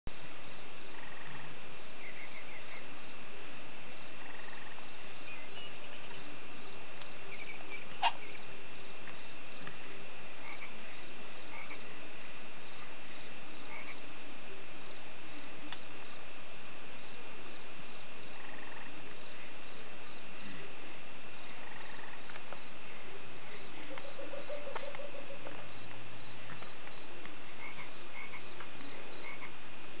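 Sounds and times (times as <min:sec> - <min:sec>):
steady hiss: 0:00.1 - 0:24.1.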